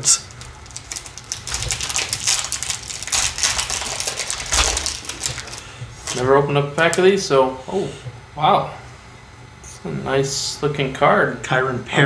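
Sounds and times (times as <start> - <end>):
foil wrapper crinkling and tearing: 0.1 - 7.0.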